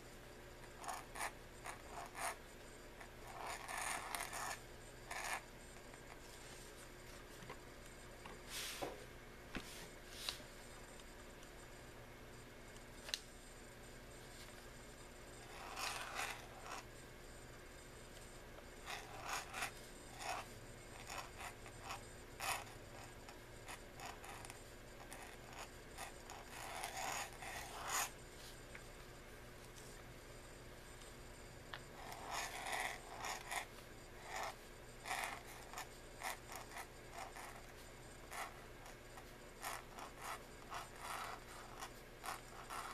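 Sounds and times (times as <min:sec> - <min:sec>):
pen nib scratching on paper: 0:00.8 - 0:02.4, 0:03.0 - 0:06.2, 0:15.4 - 0:16.9, 0:18.8 - 0:28.2, 0:31.8 - 0:42.9.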